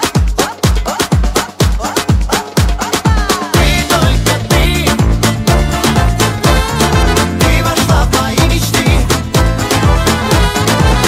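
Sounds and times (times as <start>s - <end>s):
dance music with kick drum: 0.0s - 11.0s.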